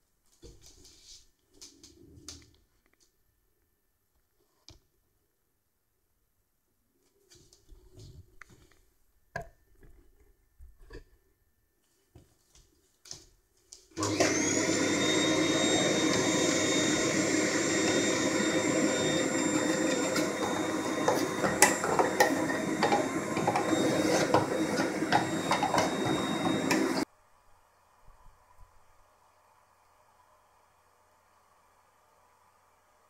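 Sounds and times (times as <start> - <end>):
vacuum cleaner motor running: 14.0 - 27.0.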